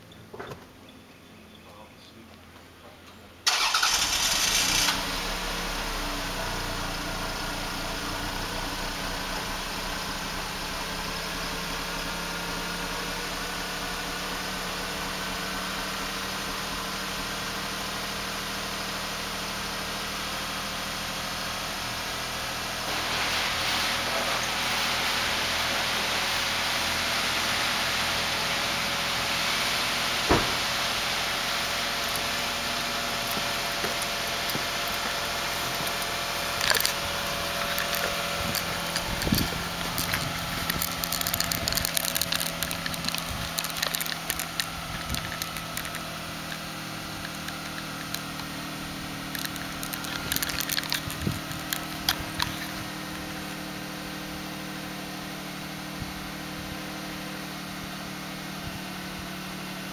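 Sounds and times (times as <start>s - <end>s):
car engine idling: 0.0s - 59.9s
loud thumps: 30.3s - 30.8s.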